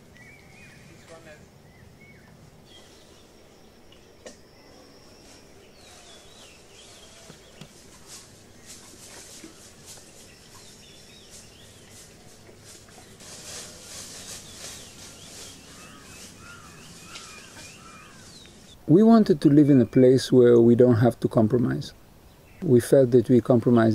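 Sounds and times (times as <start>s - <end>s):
birds chirping: 0.0s - 23.9s
water splashing onto dry leaves: 11.4s - 18.2s
short arching bird calls: 15.1s - 18.8s.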